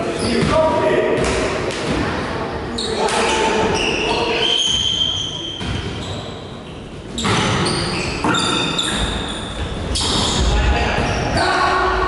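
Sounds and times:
voices echoing in a hall: 0:00.0 - 0:12.0
shoes squeaking on gym floor: 0:02.7 - 0:10.5.

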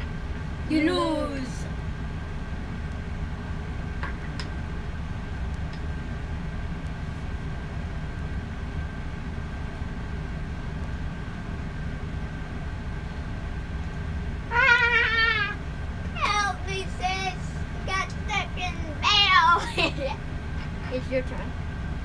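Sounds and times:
faint steady hum: 0:00.0 - 0:22.0
low background rumble: 0:00.0 - 0:22.0
child's high voice: 0:14.5 - 0:15.6, 0:16.2 - 0:20.1.

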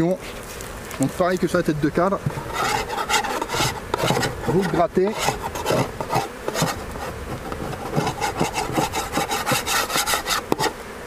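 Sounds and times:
honeybees buzzing: 0:00.0 - 0:11.0
rasping scraping strokes: 0:02.2 - 0:10.9.

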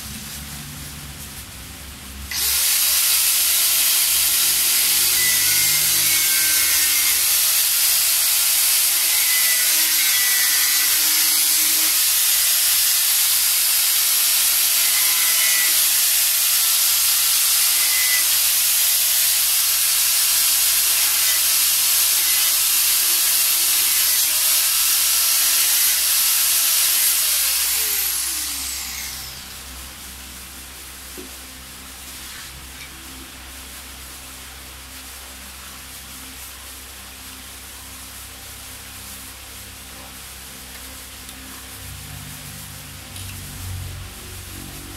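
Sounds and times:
loud cutting hiss: 0:00.0 - 0:44.9
power tool motor whine: 0:02.3 - 0:29.6.

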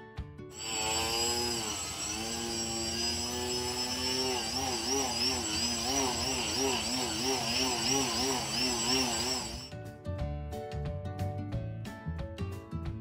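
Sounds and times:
model plane motor buzzing: 0:00.6 - 0:09.7.

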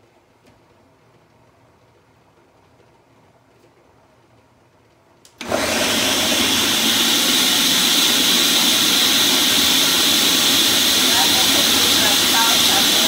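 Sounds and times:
blender running loudly: 0:05.4 - 0:13.0.

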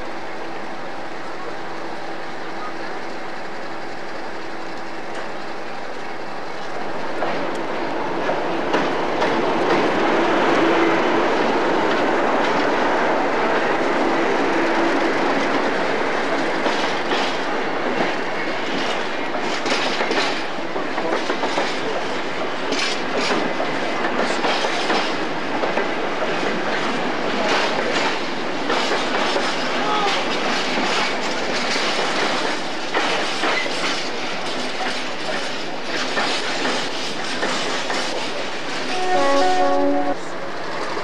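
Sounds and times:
diesel locomotive engine running: 0:00.0 - 0:41.0
wheels clicking over rail joints: 0:13.5 - 0:39.0.

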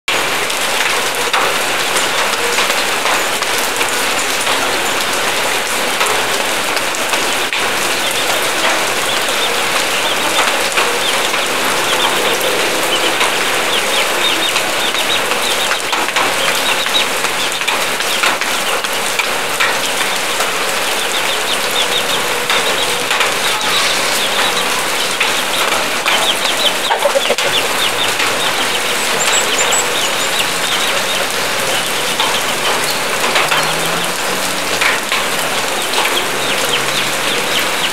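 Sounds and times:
rain hiss: 0:00.1 - 0:37.9
chickens clucking: 0:06.0 - 0:37.9.

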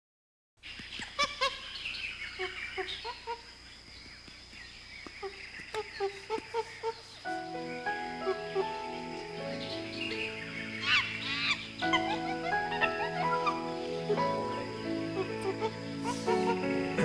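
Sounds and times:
birds calling: 0:00.6 - 0:17.0
music: 0:07.3 - 0:17.0.

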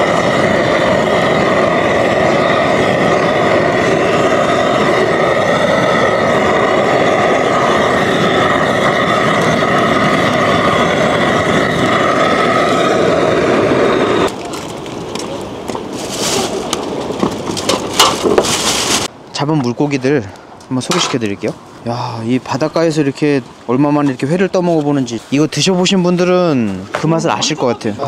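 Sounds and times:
engine running steadily: 0:00.0 - 0:19.0.

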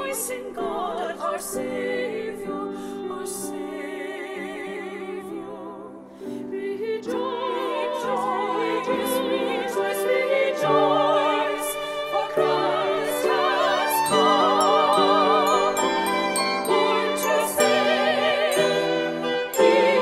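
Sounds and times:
women's choir singing: 0:00.0 - 0:20.0
instrumental accompaniment: 0:09.5 - 0:20.0.

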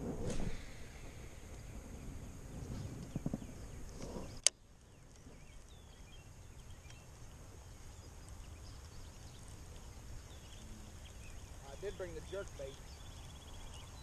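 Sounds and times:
faint outdoor ambience: 0:00.0 - 0:14.0
bird chirps: 0:00.6 - 0:14.0.

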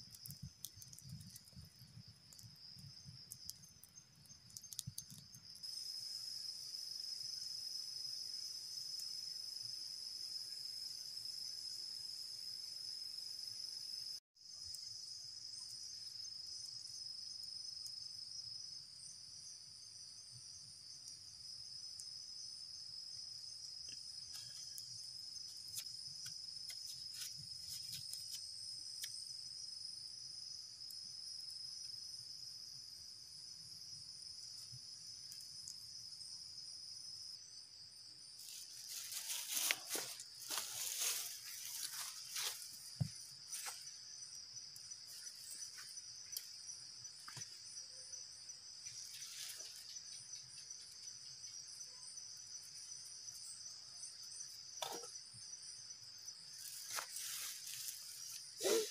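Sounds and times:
faint ticks: 0:00.0 - 0:05.7
high-pitched insect chorus: 0:00.0 - 0:58.9.

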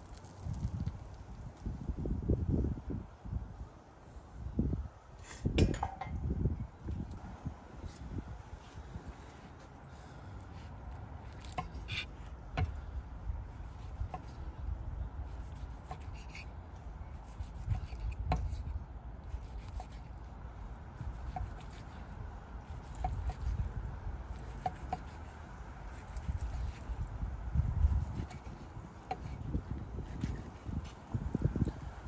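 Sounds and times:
knife slicing meat: 0:11.2 - 0:12.7, 0:13.6 - 0:14.4, 0:15.3 - 0:16.5, 0:19.3 - 0:20.1, 0:21.1 - 0:22.0, 0:25.9 - 0:26.9, 0:27.7 - 0:30.9.

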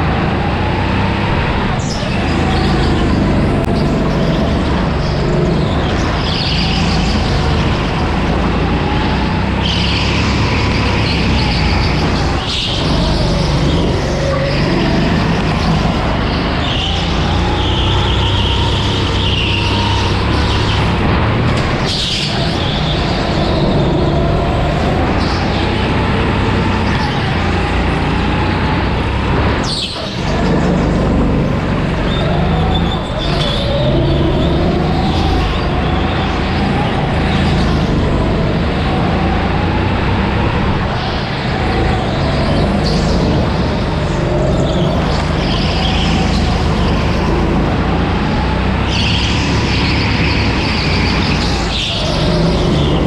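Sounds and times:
go-kart engine revving: 0:00.0 - 0:53.0
high-pitched tyre squeals: 0:00.0 - 0:53.0.

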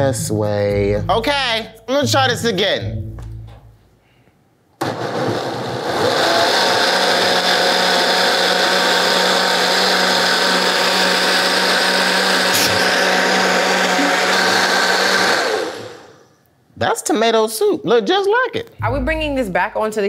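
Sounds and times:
blender motor running: 0:04.8 - 0:16.3.

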